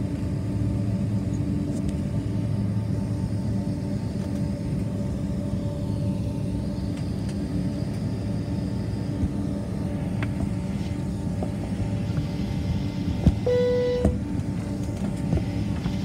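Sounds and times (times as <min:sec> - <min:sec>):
jet engines idling rumble: 0:00.0 - 0:16.0
short single-pitch beep: 0:13.4 - 0:14.2.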